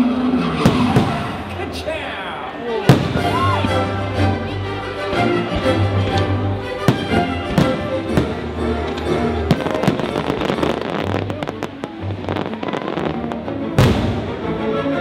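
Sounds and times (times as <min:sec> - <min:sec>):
fireworks bursting and crackling: 0:00.0 - 0:03.8, 0:06.8 - 0:14.4
music soundtrack: 0:00.0 - 0:15.0.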